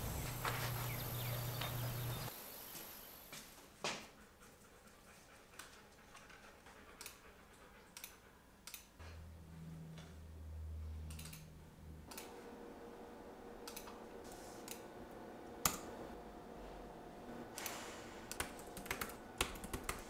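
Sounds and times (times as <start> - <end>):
keyboard and mouse clicks: 8.0 - 8.9, 11.1 - 11.5, 17.6 - 20.0.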